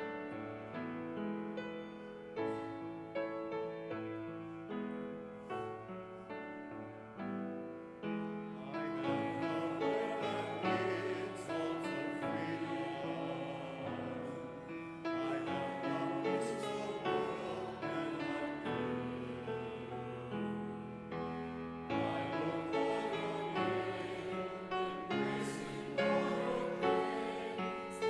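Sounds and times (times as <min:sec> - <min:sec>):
piano playing church music: 0:00.0 - 0:28.0
voices singing: 0:08.5 - 0:28.0.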